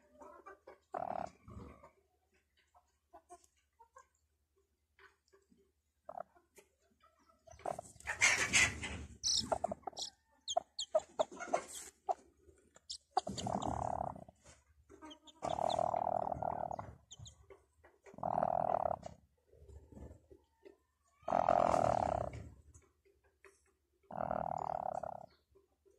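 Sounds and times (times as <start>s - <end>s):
chick peeping: 5.0s - 20.6s
hen low drawn-out calls: 7.6s - 12.2s, 12.9s - 14.3s.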